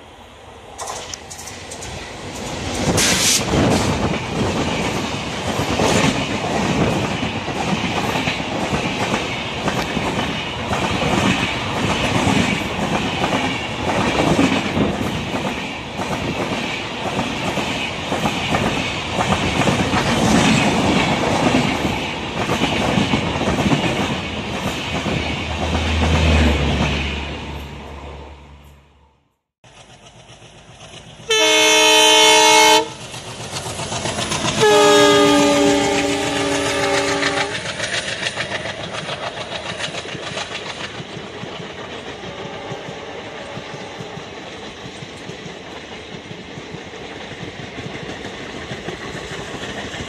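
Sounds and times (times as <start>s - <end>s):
train passing with loud rumble: 0.0s - 50.0s
wheels clacking over rail joints: 33.0s - 50.0s.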